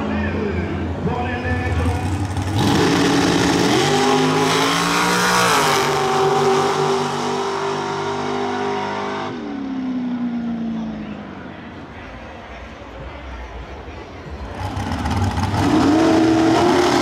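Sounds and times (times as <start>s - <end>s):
dragster engine at full throttle: 1.6s - 9.4s, 14.6s - 17.0s.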